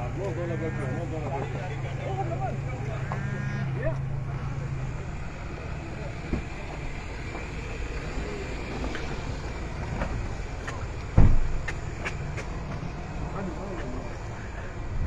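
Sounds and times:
vehicle engine rumbling: 0.0s - 15.0s
heavy thump: 11.1s - 11.8s.

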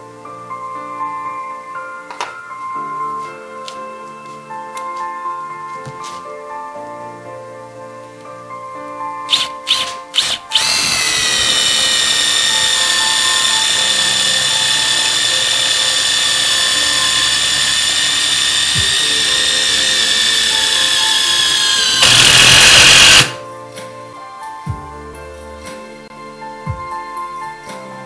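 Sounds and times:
impact driver motor whine: 9.3s - 23.4s.

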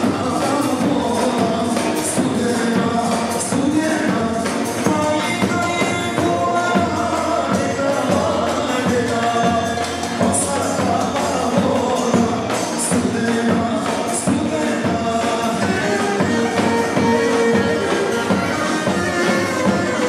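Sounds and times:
person singing: 0.0s - 20.0s
steady drum beat: 0.0s - 20.0s
sustained melody: 15.5s - 20.0s.

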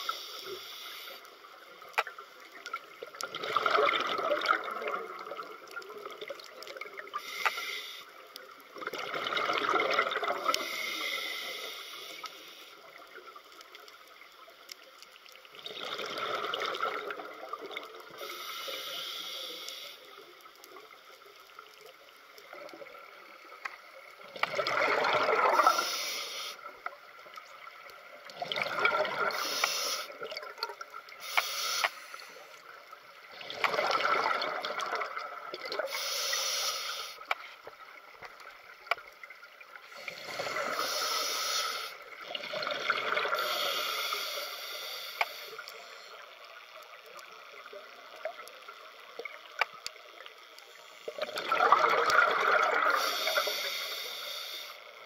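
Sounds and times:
regulator inhale hiss: 0.0s - 1.6s, 7.1s - 8.4s, 10.4s - 13.0s, 18.2s - 20.5s, 25.5s - 26.7s, 29.2s - 30.2s, 31.2s - 32.6s, 35.8s - 37.6s, 39.8s - 42.1s, 43.3s - 46.3s, 52.8s - 55.0s
exhaled bubbles gushing: 3.0s - 7.1s, 8.8s - 10.6s, 15.5s - 18.2s, 24.3s - 25.8s, 28.2s - 29.4s, 30.1s - 31.0s, 33.3s - 35.9s, 42.0s - 43.5s, 51.1s - 53.2s.

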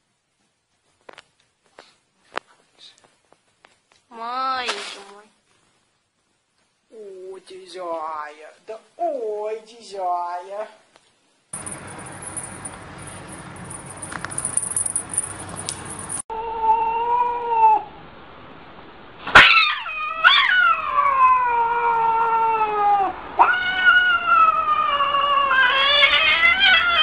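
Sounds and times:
cat yowling: 16.3s - 17.9s, 19.4s - 27.0s.

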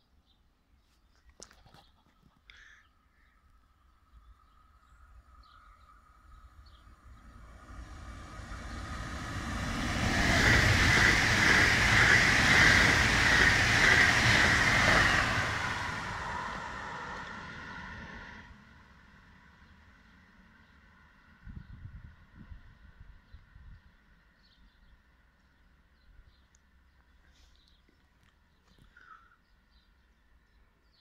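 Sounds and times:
electric train passing: 4.6s - 24.4s.

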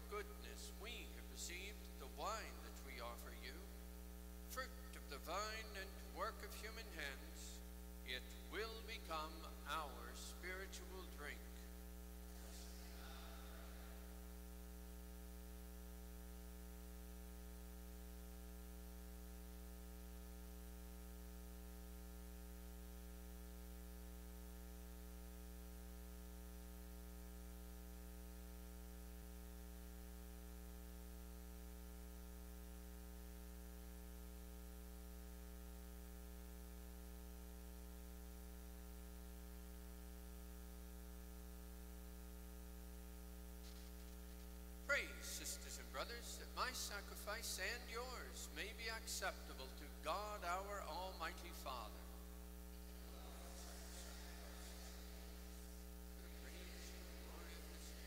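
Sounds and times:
faint hiss: 0.0s - 14.6s, 43.5s - 58.0s.

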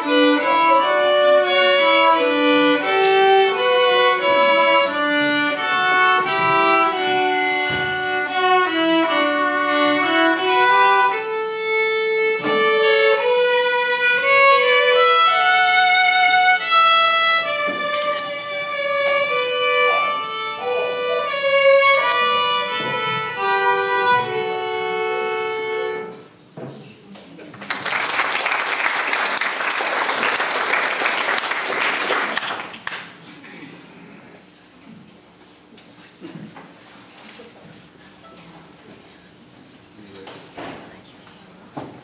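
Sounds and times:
solo violin melody: 0.0s - 26.3s
audience applause: 27.5s - 33.2s.

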